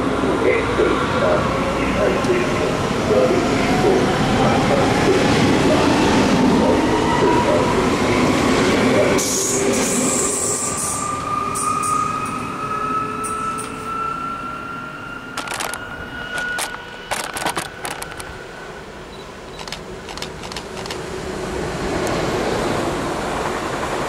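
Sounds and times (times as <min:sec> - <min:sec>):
electric train accelerating past: 0:00.0 - 0:18.8, 0:20.8 - 0:24.0
sharp clicks: 0:15.4 - 0:18.3, 0:19.5 - 0:21.0.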